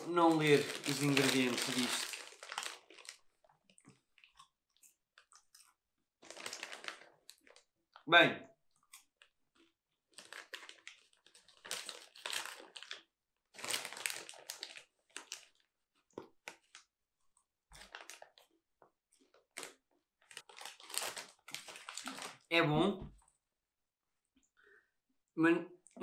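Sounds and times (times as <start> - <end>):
plastic bag crinkling: 0.0 - 3.3, 6.2 - 7.7, 10.1 - 15.6, 17.8 - 18.4, 19.3 - 22.5.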